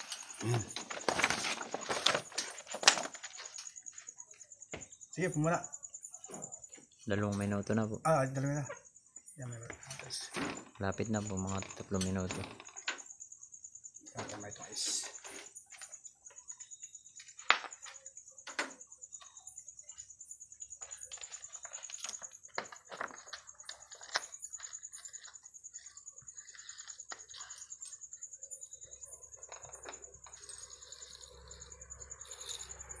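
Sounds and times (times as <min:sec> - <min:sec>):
high insect trill: 0:00.0 - 0:33.0.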